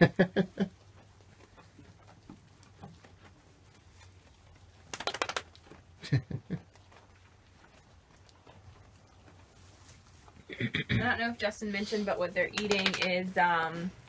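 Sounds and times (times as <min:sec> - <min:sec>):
goats eating hay: 0:00.0 - 0:14.0
rattle of sharp clicks: 0:04.9 - 0:05.5, 0:12.6 - 0:13.2.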